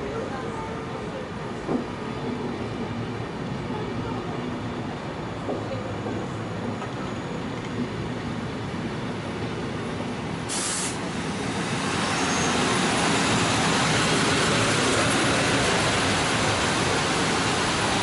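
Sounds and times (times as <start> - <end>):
train wheels rumbling on rail: 0.1 - 18.0
air hiss: 10.5 - 11.0.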